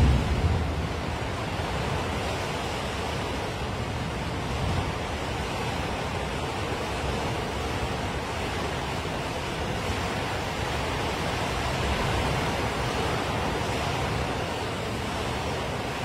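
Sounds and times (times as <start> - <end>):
torrential rain: 0.0 - 16.0
wind: 0.0 - 16.0.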